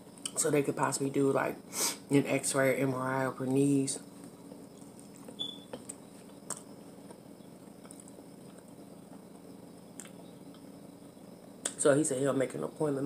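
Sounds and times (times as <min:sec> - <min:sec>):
faint steady hum: 0:00.0 - 0:13.0
chewing and mouth sounds: 0:04.7 - 0:10.7.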